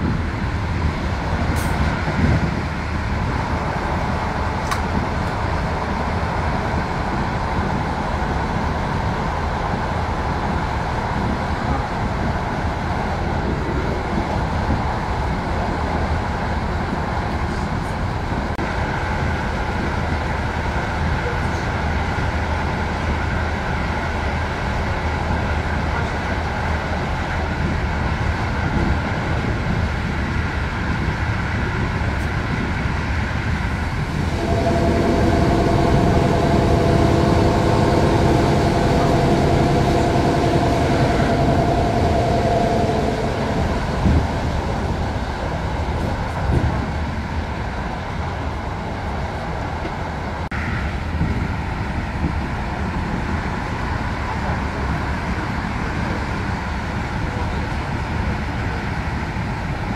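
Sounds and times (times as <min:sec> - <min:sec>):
train rumbling on rails: 0:00.0 - 0:59.9
multi-pitched whine: 0:33.8 - 0:45.9.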